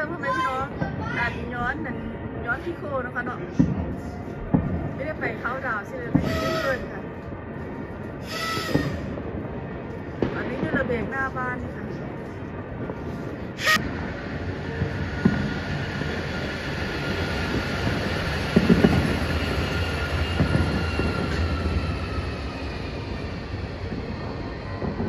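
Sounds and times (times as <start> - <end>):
tram wheel squeal: 6.2 - 6.9, 8.2 - 9.1, 13.6 - 25.0
tram rumbling: 12.6 - 25.0.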